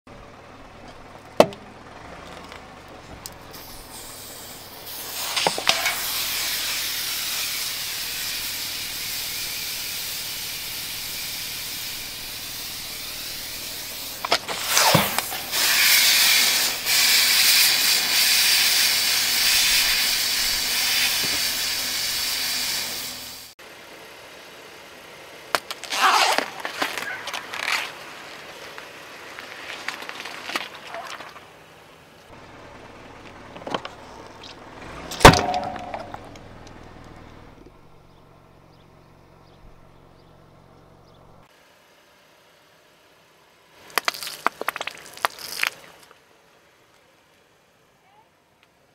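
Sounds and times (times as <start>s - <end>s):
gas hissing from spray can: 3.5s - 23.6s
watermelon crunching and squelching: 25.6s - 31.6s, 43.8s - 46.1s.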